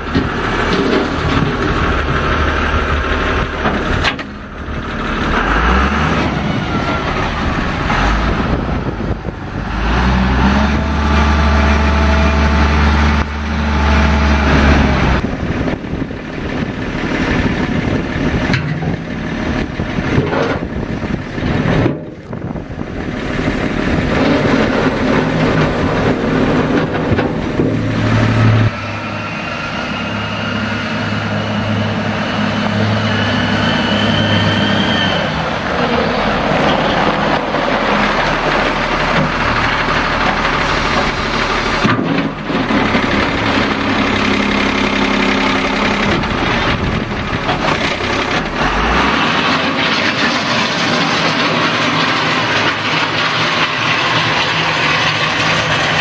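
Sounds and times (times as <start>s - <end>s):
diesel engine running: 0.0s - 56.0s
rising whine: 24.9s - 39.8s.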